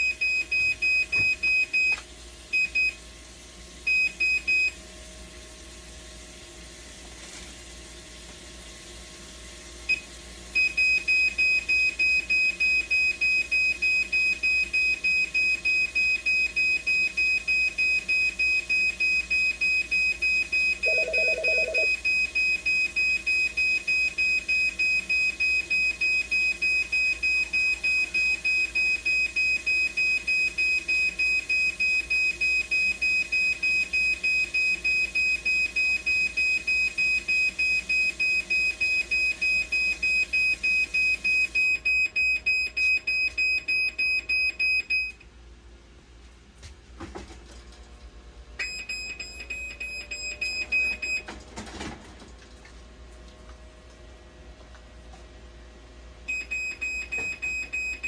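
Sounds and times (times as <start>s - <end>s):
rapid high alarm beeps: 10.6s - 45.2s, 48.6s - 51.2s, 56.3s - 58.0s.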